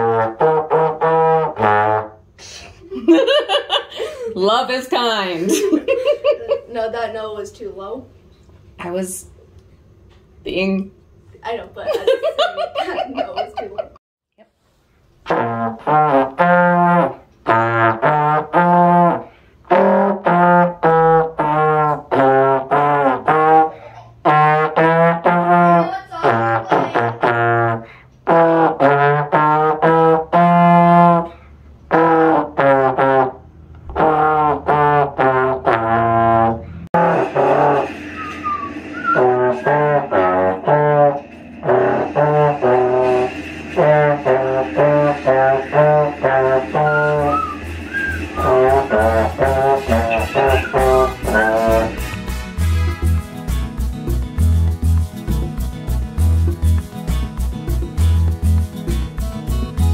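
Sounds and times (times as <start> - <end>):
trombone playing detached notes: 0.0 - 2.3, 15.2 - 59.0.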